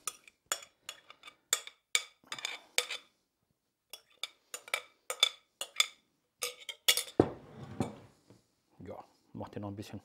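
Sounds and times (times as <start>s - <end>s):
metal spoon clinking glass bowl: 0.0s - 3.1s, 3.9s - 7.2s.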